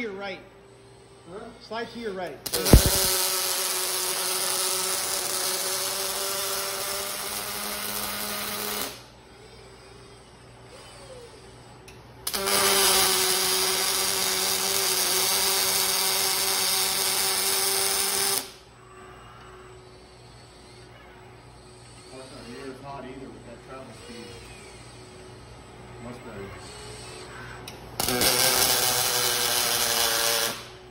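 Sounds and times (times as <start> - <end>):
welding arc buzzing: 2.4 - 9.2, 12.2 - 18.8, 27.3 - 30.9.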